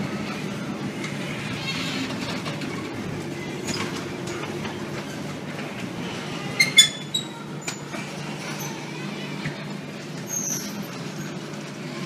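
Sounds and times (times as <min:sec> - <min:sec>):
low rumbling noise: 0:00.0 - 0:06.7.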